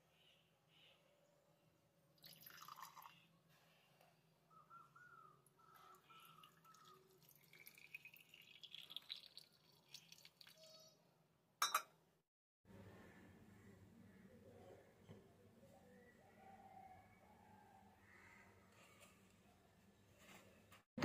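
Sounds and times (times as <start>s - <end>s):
water trickling into metal pot: 2.2s - 3.2s, 6.0s - 11.0s.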